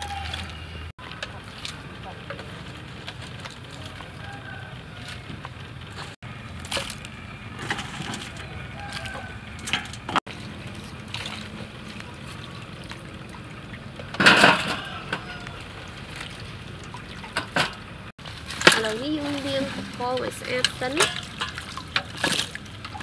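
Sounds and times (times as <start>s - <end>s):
water splash: 6.0s - 23.0s.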